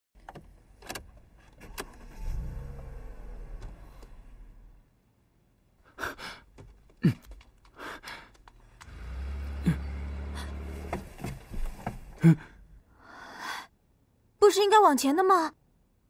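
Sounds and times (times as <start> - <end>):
car engine rumble: 0.2 - 5.3, 8.4 - 12.9.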